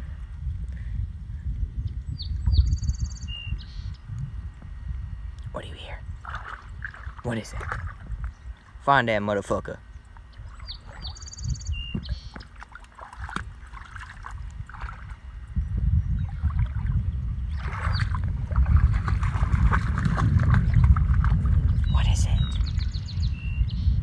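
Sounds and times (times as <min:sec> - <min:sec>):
dog splashing through water: 0:06.2 - 0:08.1, 0:12.4 - 0:15.2, 0:16.3 - 0:21.8
high bird chirps: 0:09.9 - 0:12.5.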